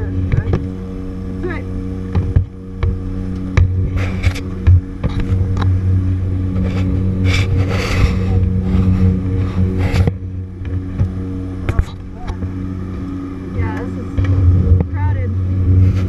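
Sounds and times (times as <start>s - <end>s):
turboprop engines droning: 0.0s - 16.0s
fabric rubbing against camera: 6.5s - 10.2s.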